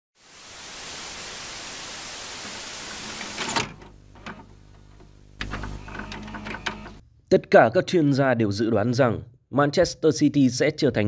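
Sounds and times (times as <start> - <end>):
tv static hiss: 0.2 - 7.0.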